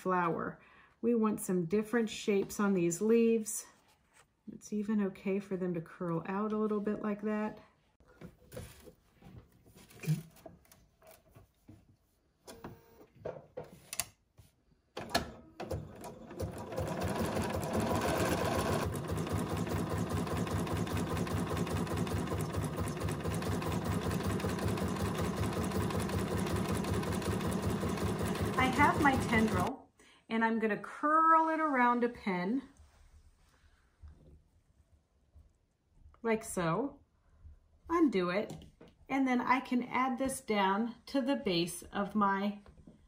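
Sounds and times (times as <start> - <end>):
sewing machine stitching: 15.0 - 29.7.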